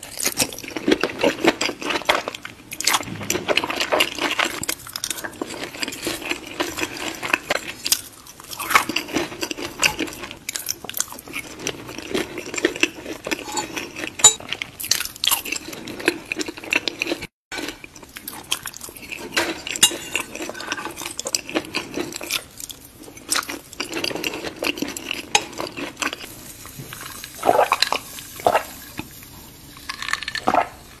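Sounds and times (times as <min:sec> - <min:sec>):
fork scraping on a plate: 0:13.2 - 0:14.4.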